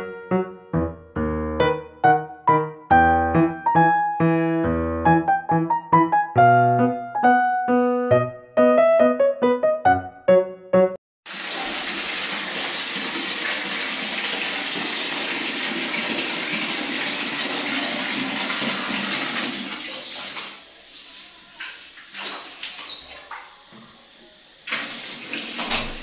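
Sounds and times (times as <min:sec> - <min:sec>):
piano notes: 0:00.0 - 0:11.0
water pouring into metal basin: 0:11.3 - 0:23.7, 0:24.6 - 0:26.0
short high squeaks: 0:20.8 - 0:23.2.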